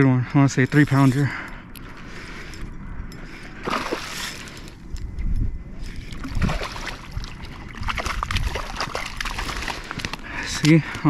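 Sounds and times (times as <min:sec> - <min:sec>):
fish thrashing and splashing: 0:03.6 - 0:04.8, 0:05.8 - 0:10.3.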